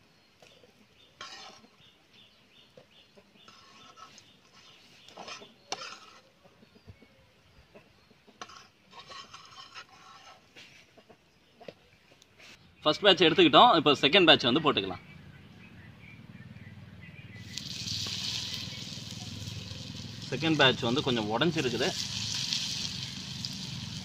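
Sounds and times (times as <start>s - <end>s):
metal spatula scraping pan: 1.2s - 1.9s, 3.4s - 6.4s, 8.4s - 10.8s.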